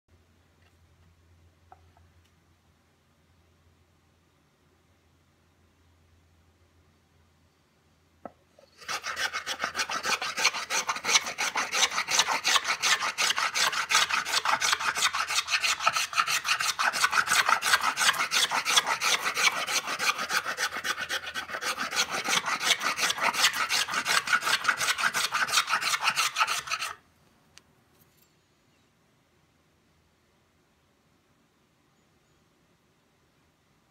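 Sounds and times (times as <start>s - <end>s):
hand plane rasping on wood: 8.7s - 27.0s.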